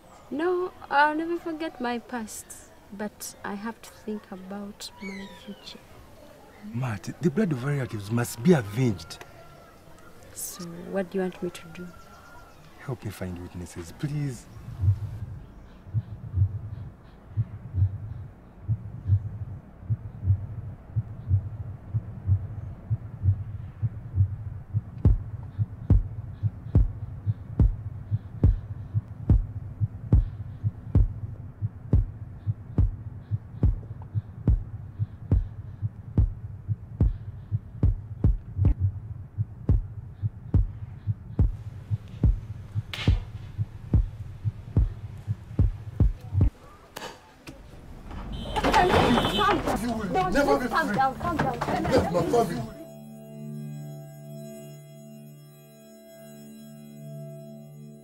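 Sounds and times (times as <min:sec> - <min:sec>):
low hum: 0:14.3 - 0:46.5, 0:50.4 - 0:58.0
heartbeat pulse: 0:14.6 - 0:46.6.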